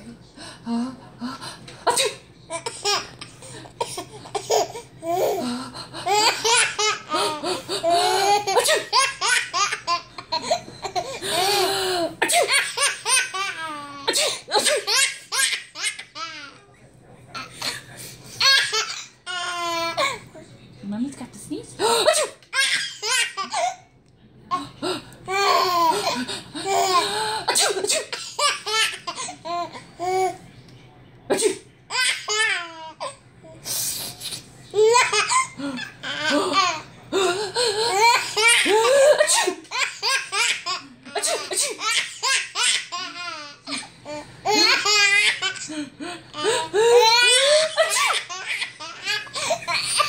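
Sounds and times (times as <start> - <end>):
baby laughing: 46.3 - 50.0.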